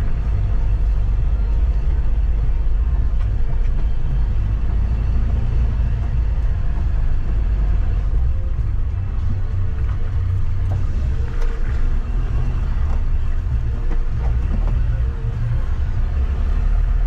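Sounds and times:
low rumble of engine and tyres: 0.0 - 17.0.

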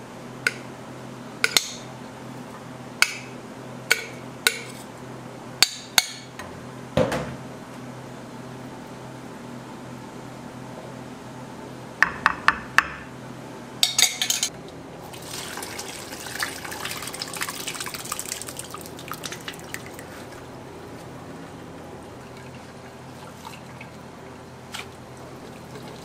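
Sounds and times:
utensil knocking against a pot: 12.0 - 13.0
caramel crackling and dripping: 15.1 - 26.0.

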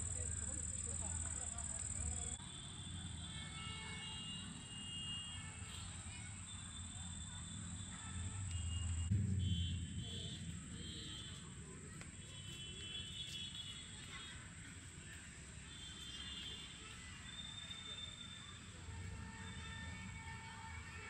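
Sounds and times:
low rumble: 8.6 - 11.7.

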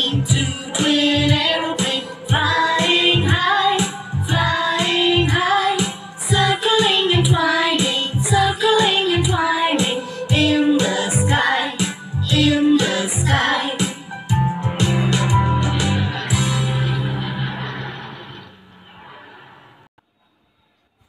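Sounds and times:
voices singing a children's song: 0.0 - 14.2
musical backing with steady beat: 0.0 - 17.5.

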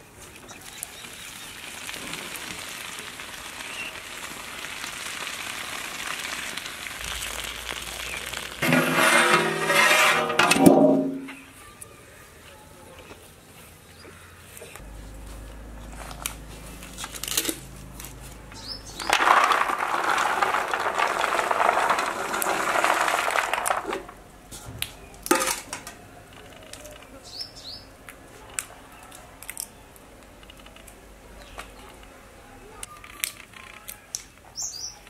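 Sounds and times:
peanut shells cracking: 16.1 - 24.2, 28.1 - 31.0
peanuts rattling onto steel plate: 18.6 - 24.2.

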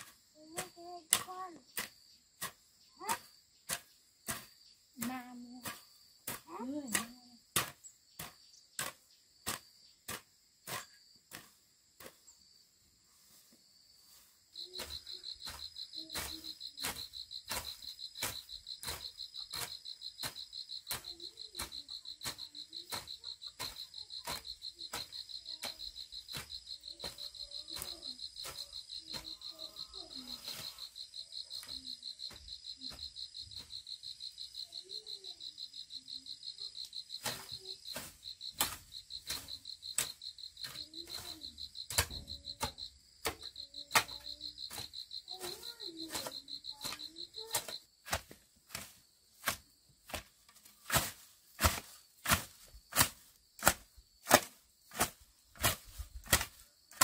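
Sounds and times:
hoe chopping into soil: 0.5 - 12.2, 37.2 - 44.8, 45.4 - 57.0
insect trilling: 14.5 - 48.0.

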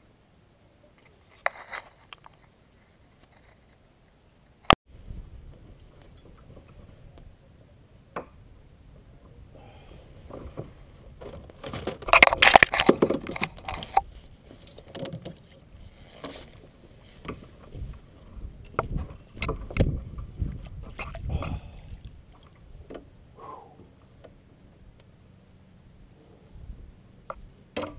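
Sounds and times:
gear clattering on plastic kayak: 10.2 - 22.0.

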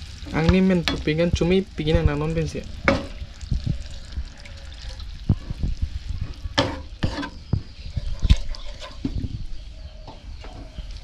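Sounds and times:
soft sizzle from pan: 0.0 - 11.0
wooden spatula scraping pan: 6.2 - 9.3.

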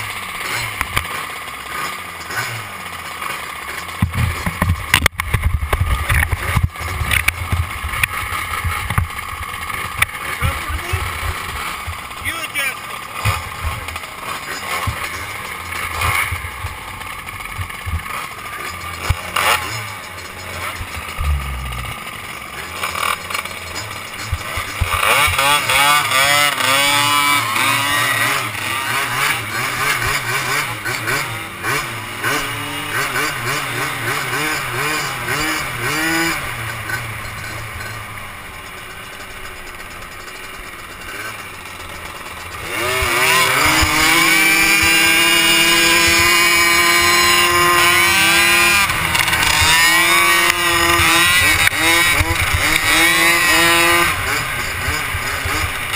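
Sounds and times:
quad engines idling and revving: 0.0 - 55.9.

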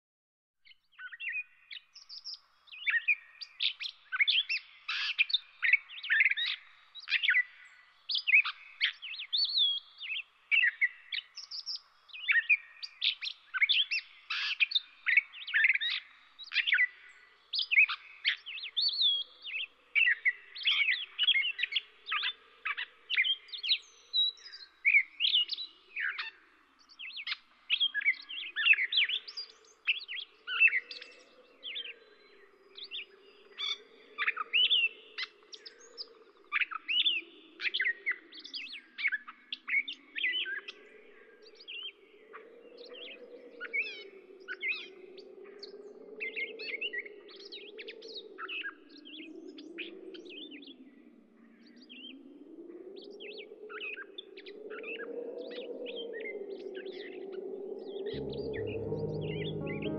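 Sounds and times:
songbirds chirping and singing: 0.7 - 59.9.

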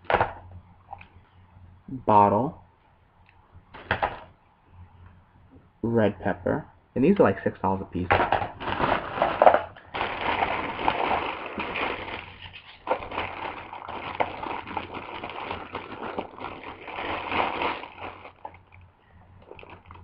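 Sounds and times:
plastic bag rustling: 8.5 - 18.8, 19.4 - 20.0.

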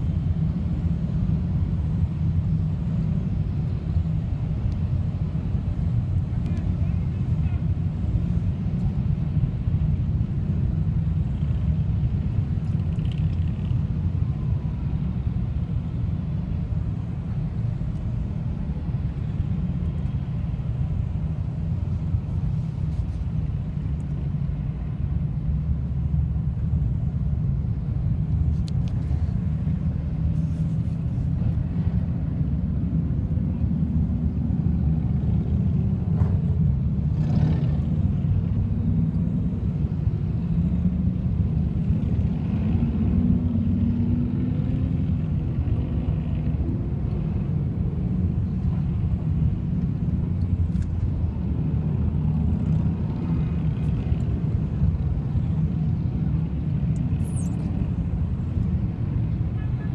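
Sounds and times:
motorcycles riding past: 36.4 - 47.5
motorcycle passing close: 37.1 - 38.4.

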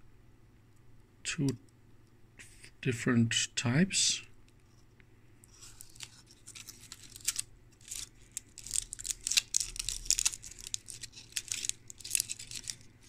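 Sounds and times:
circuit board crinkling in fingers: 5.5 - 13.0.

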